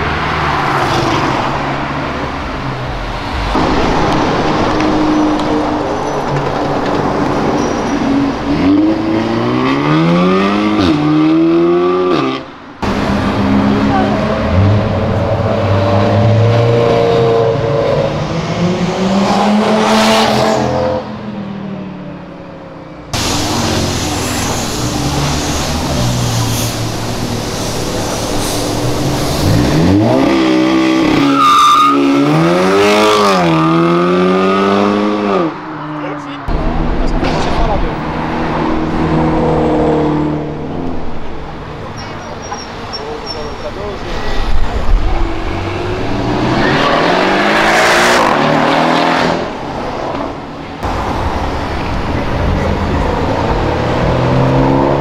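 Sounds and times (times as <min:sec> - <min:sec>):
car engine accelerating: 0:00.0 - 0:21.1, 0:32.0 - 0:55.0.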